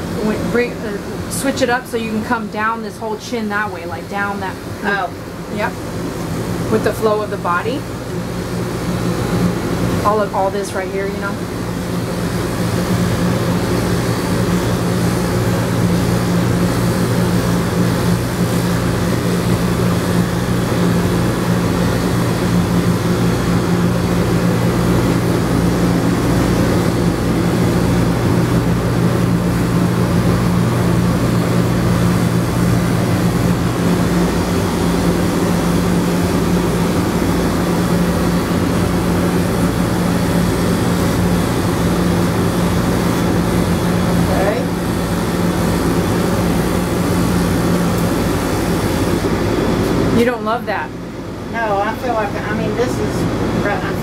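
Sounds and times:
electric clipper motor humming: 12.0 - 50.0.

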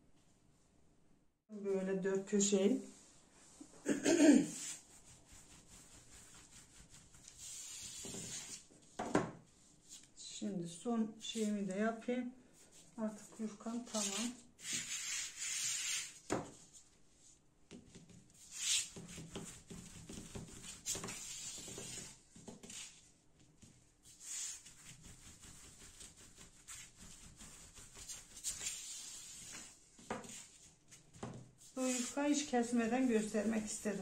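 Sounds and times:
rolling pin swishing on dough: 4.5 - 8.7, 17.9 - 34.0.

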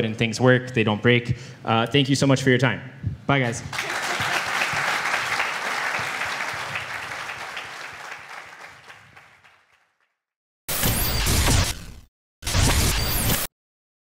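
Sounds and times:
audience applauding: 3.7 - 10.1.

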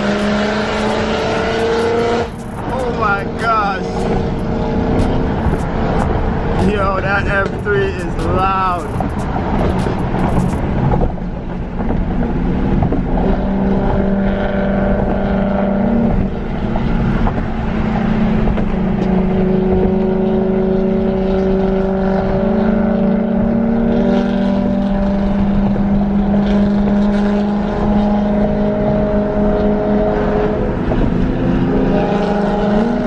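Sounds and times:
car engine running: 0.0 - 22.4
tyre and road noise: 0.0 - 33.0.

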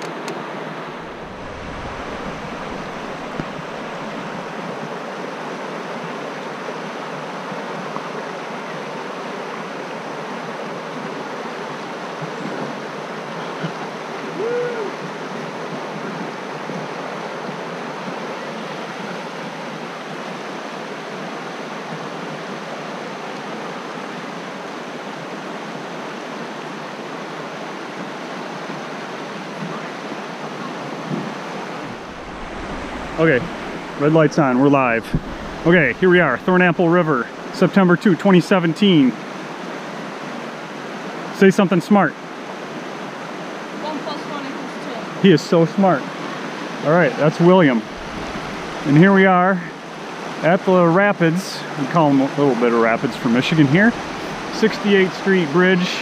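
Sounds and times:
river water rushing over rocks: 0.0 - 37.7, 42.2 - 51.0, 51.6 - 56.0
hooting call: 14.3 - 15.0.

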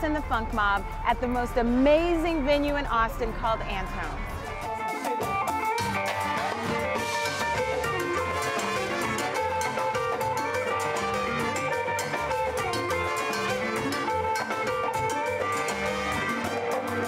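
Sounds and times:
bass: 0.0 - 17.0
congas: 0.0 - 17.0
drum kit: 0.2 - 17.0
electric guitars: 0.8 - 17.0
horns: 5.8 - 17.0.

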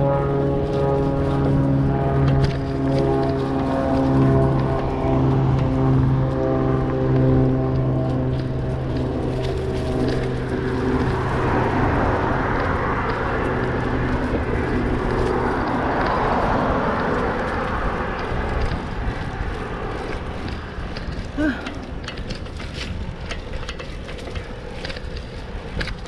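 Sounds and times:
engine hum: 0.0 - 26.0
passing vehicles rushing: 0.0 - 26.0.

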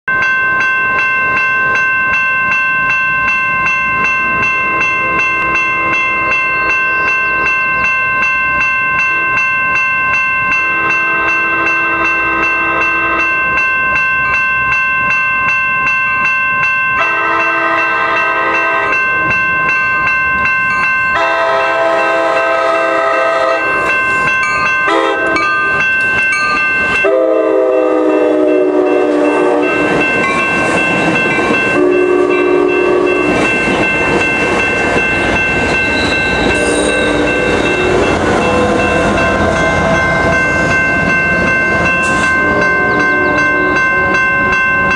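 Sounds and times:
railroad crossing bell ringing: 0.0 - 44.9
train horn blasts: 10.8 - 13.4, 17.0 - 19.1, 21.2 - 23.8, 24.9 - 25.4, 27.0 - 29.9, 31.8 - 33.4, 36.5 - 40.0
train cars rolling past: 15.4 - 44.9.

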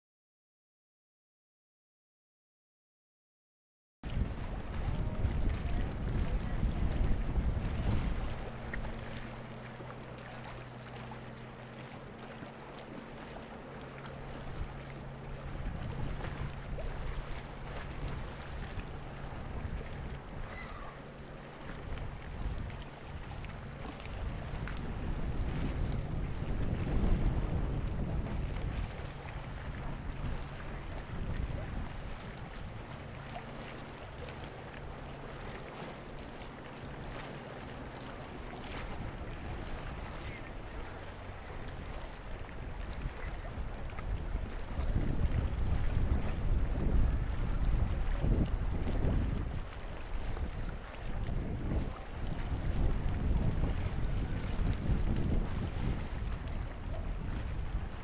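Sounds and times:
water noise: 4.0 - 58.0
wind: 4.0 - 58.0
small waves lapping: 4.1 - 58.0
ship engines droning: 4.3 - 26.4, 28.0 - 44.8.

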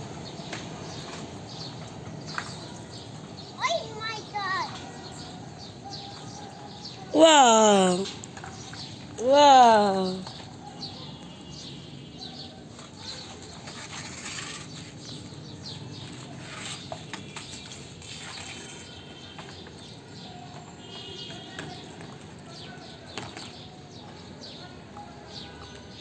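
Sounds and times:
small birds chirping: 0.2 - 24.7.

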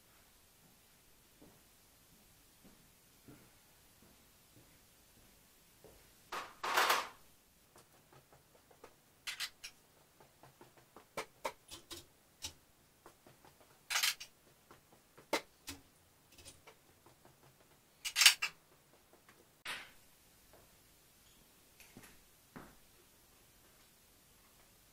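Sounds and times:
rustling and scraping: 7.8 - 19.7.

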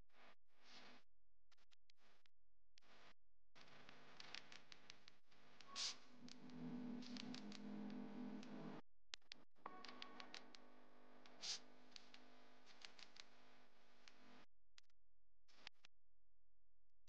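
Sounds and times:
low steady tone: 5.7 - 8.8
knitting needles clicking: 11.4 - 13.3.

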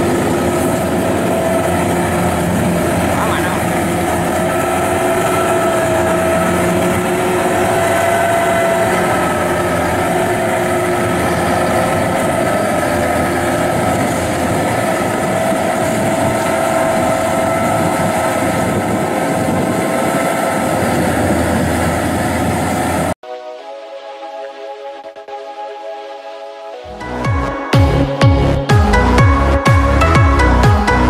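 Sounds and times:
diesel engine running: 0.0 - 23.2.

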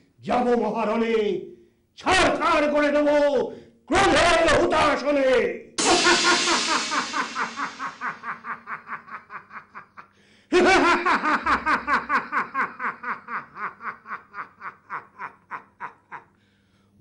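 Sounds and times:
man laughing theatrically: 5.8 - 16.4.

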